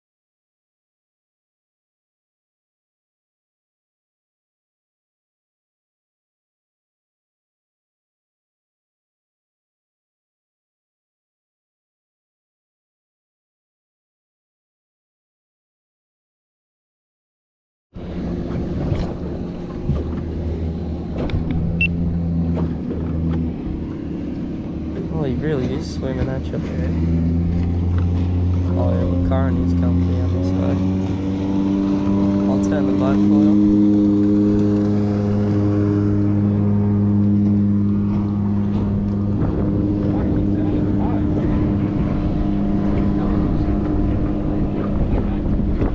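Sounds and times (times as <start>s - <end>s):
boat motor running: 18.0s - 45.9s.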